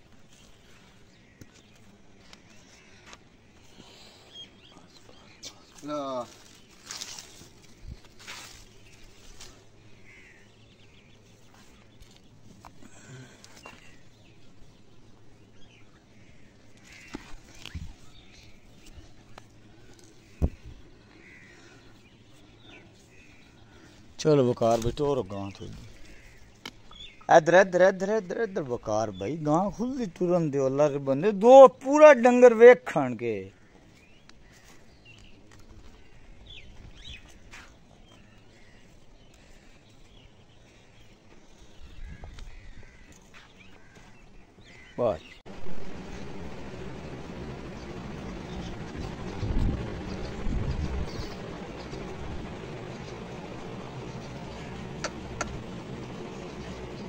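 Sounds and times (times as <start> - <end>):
birds calling faintly: 0.0 - 57.0
low rumble: 45.5 - 57.0.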